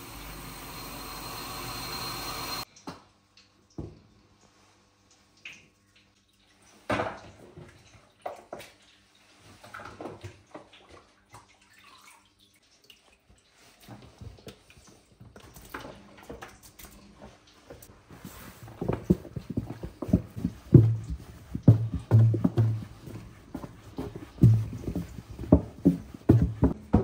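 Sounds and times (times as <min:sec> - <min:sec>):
water splashing and sloshing: 0:03.4 - 0:27.0
knocks of plastic tubs: 0:19.0 - 0:27.0.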